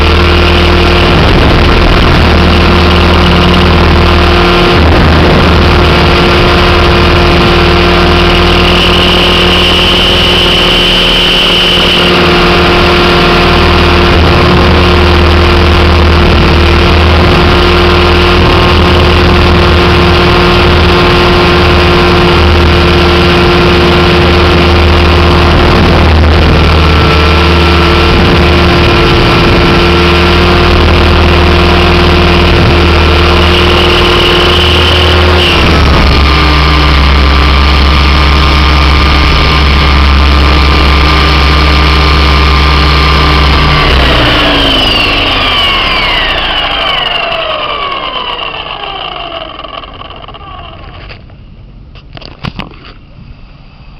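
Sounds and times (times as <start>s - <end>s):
model helicopter motor whine: 0.0s - 51.3s.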